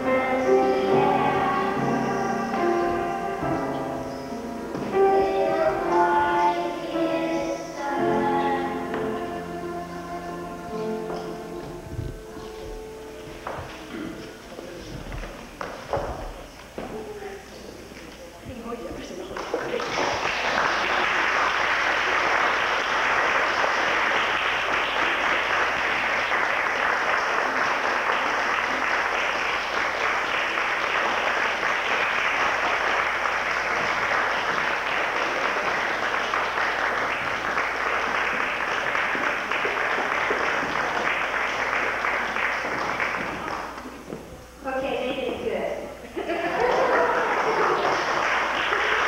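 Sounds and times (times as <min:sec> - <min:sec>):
audience applauding: 0:19.2 - 0:44.1, 0:46.5 - 0:49.0.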